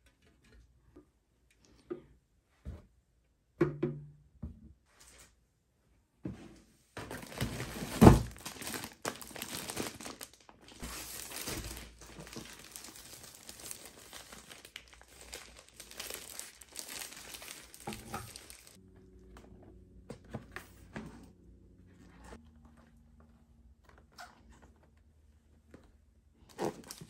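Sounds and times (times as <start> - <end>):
plastic packaging crinkling: 7.0 - 18.8, 26.5 - 27.0.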